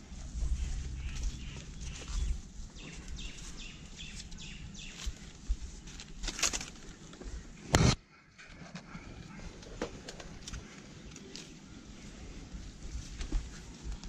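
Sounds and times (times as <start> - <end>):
outdoor background noise: 0.0 - 14.0
birds chirping: 0.1 - 6.0.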